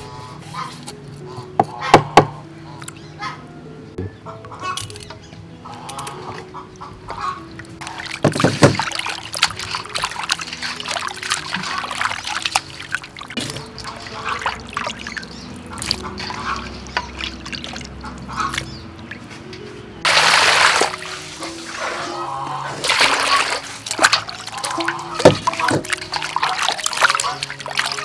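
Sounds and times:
soft background music: 0.0s - 28.0s
water splashing and trickling: 4.6s - 28.0s
rush of water: 7.8s - 18.8s, 20.0s - 28.0s.

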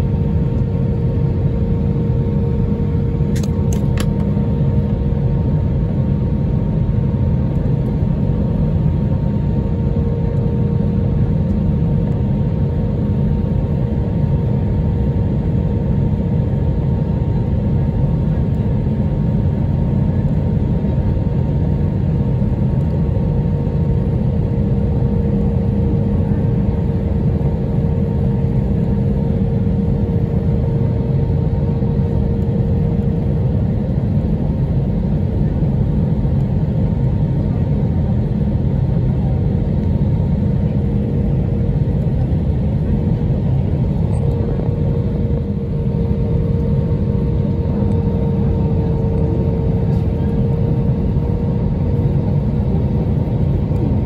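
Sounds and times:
steady engine hum tones: 0.0s - 54.0s
jet engines roaring: 34.5s - 54.0s.

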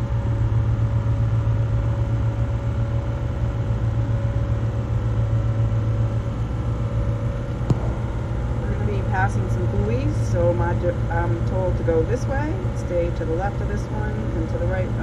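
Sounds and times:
diesel engines droning: 7.3s - 15.0s.

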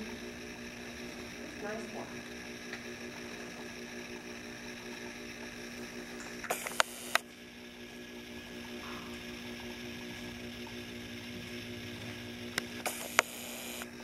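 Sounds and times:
electrical hum with hiss: 0.0s - 14.0s
sharp clicks: 6.5s - 7.2s, 12.6s - 13.9s.

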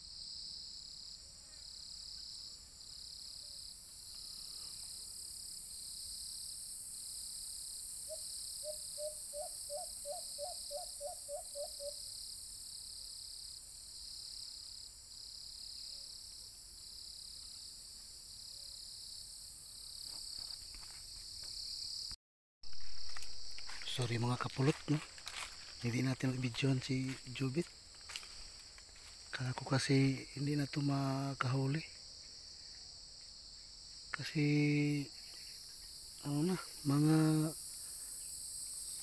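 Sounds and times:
insects buzzing in a pulsing drone: 0.0s - 39.0s
dove cooing: 8.1s - 12.0s.

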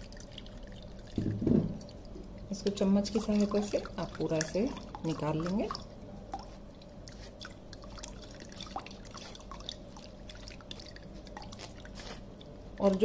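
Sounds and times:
juice dripping: 0.0s - 13.0s.

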